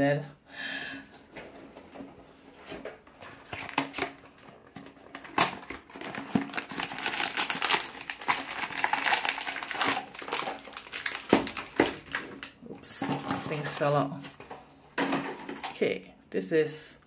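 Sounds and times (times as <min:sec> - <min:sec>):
foil bag crinkling: 0:03.3 - 0:12.6.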